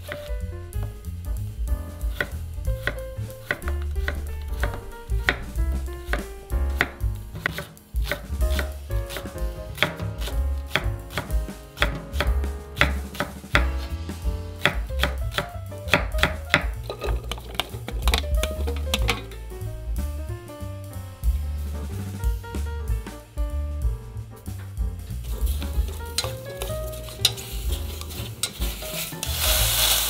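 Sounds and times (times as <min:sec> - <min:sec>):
knife chopping on wooden board: 0:02.1 - 0:05.4, 0:06.1 - 0:13.8, 0:14.6 - 0:19.3.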